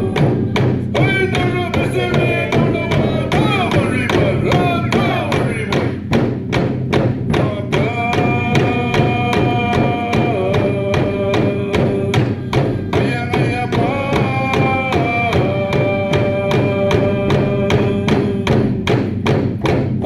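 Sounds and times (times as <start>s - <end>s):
drum beating steadily: 0.0s - 20.0s.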